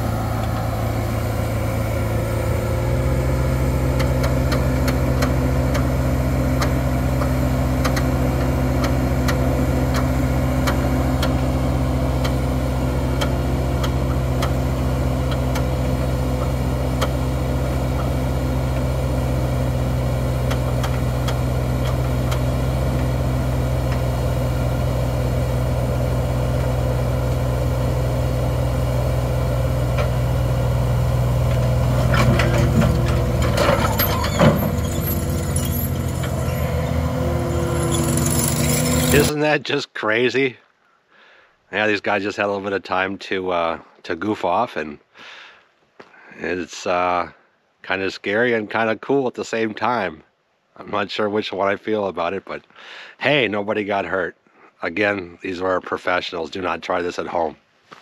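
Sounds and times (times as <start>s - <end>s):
diesel engines idling: 0.0s - 39.4s
metallic clanks: 31.5s - 39.3s.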